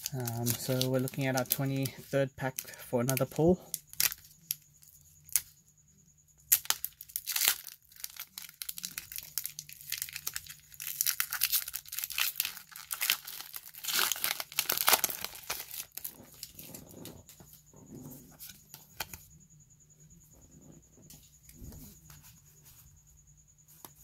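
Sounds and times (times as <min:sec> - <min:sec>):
foil wrapper tearing and crinkling: 0:00.0 - 0:04.6, 0:06.5 - 0:16.9.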